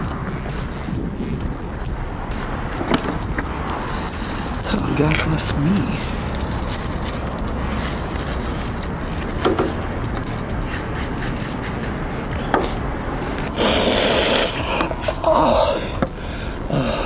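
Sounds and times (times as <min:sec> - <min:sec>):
plastic bag rustling: 0:05.3 - 0:09.9
rushing hiss: 0:13.2 - 0:17.0.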